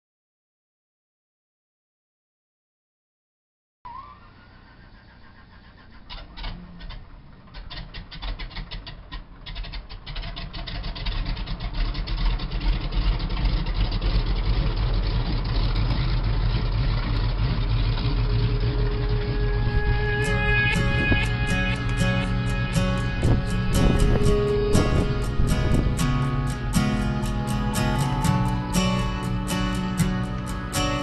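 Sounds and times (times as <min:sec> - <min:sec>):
radial aircraft engine starting: 0:03.9 - 0:31.0
guitar music: 0:18.1 - 0:31.0.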